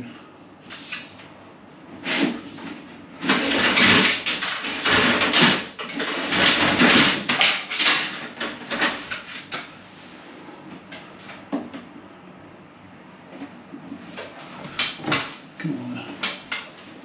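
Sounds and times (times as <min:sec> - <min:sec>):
cable rustling and scraping: 0:00.8 - 0:11.5.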